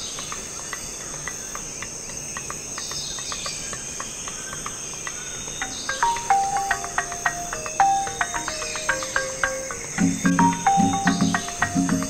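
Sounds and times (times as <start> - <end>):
short insect chirps: 3.0 - 12.0
high-pitched insect drone: 5.4 - 12.0.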